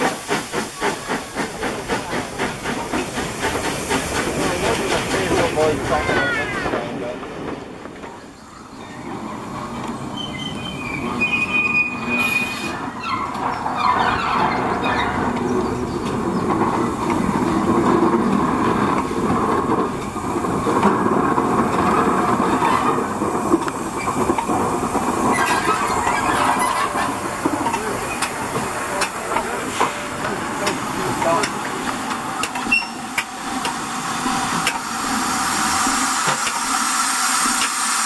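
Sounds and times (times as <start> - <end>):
train clanks: 0.0 - 38.0
train wheel and rail noise: 0.0 - 38.0
high-pitched wheel squeal: 32.7 - 33.0.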